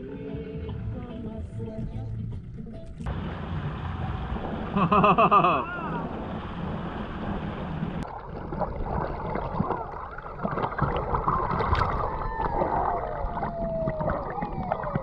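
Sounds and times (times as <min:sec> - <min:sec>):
water sloshing and gurgling: 0:02.5 - 0:15.0
boat engine: 0:03.0 - 0:15.0
small underwater clicks: 0:09.3 - 0:15.0.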